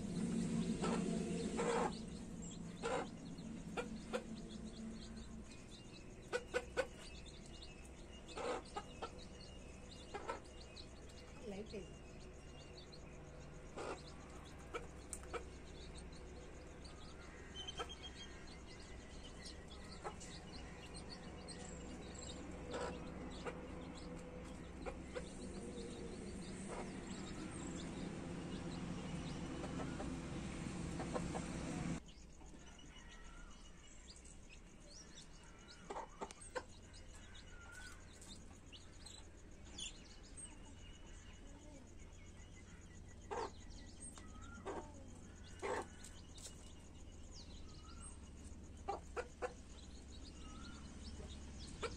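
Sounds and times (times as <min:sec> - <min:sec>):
hen clucking: 0:00.0 - 0:07.6, 0:08.2 - 0:10.7, 0:13.7 - 0:16.1, 0:19.4 - 0:32.0, 0:43.3 - 0:46.2, 0:48.8 - 0:49.8, 0:51.0 - 0:51.9
steady background noise: 0:00.0 - 0:33.0
chicks peeping: 0:00.0 - 0:33.1, 0:34.1 - 0:51.9.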